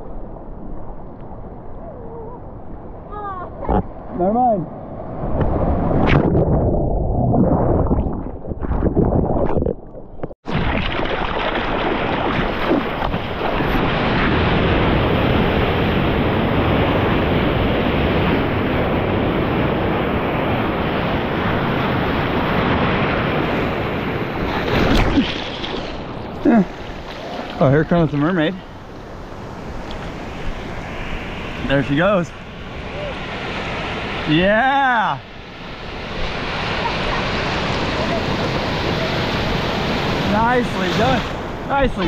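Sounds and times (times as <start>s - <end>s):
whitewater rushing and splashing: 10.5s - 18.8s, 19.6s - 42.0s.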